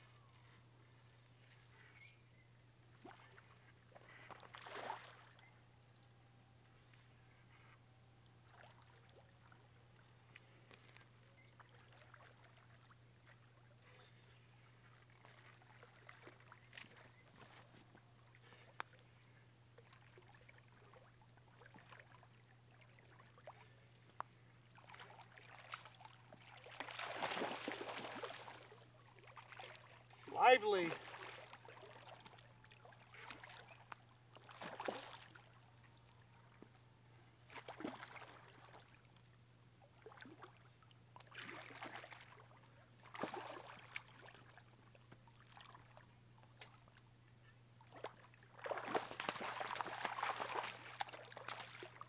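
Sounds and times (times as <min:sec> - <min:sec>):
fish splashing in water: 0:04.2 - 0:05.4, 0:24.8 - 0:30.2, 0:34.4 - 0:35.4, 0:41.2 - 0:44.6, 0:47.9 - 0:52.0.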